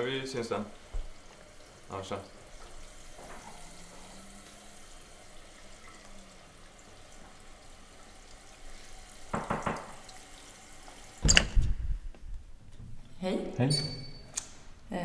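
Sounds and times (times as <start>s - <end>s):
knocks on a door: 9.3s - 10.0s.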